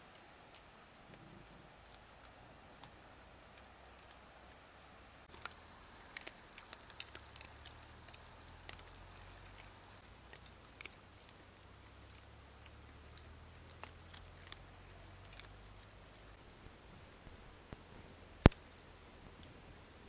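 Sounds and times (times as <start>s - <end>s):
faint low hum: 0.0s - 20.0s
dogs chewing meat: 5.3s - 16.4s.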